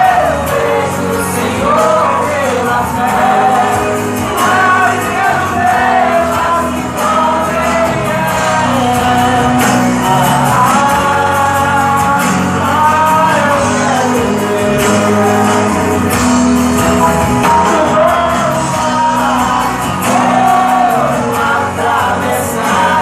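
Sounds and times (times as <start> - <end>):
backing music: 0.0 - 23.0
person singing gospel: 0.0 - 23.0.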